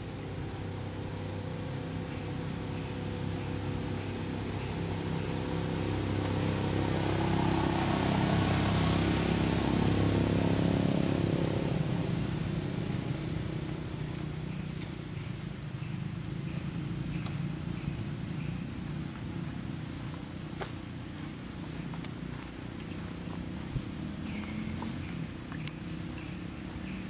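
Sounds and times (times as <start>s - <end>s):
vehicle engine running: 0.0s - 27.0s.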